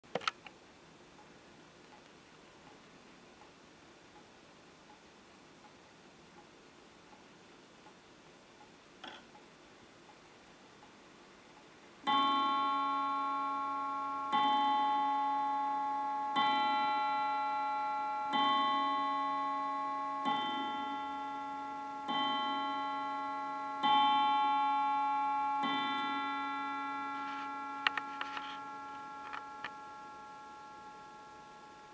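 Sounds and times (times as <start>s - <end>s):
clock ticking: 3.4s - 31.9s
clock striking: 12.1s - 31.9s.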